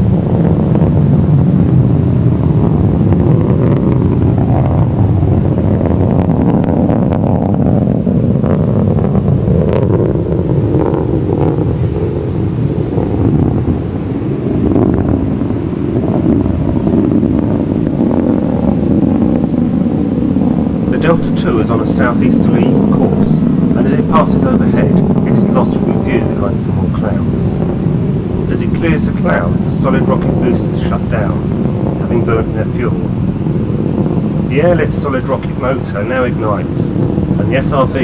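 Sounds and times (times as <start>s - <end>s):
distant rocket engine roar: 0.0s - 38.0s.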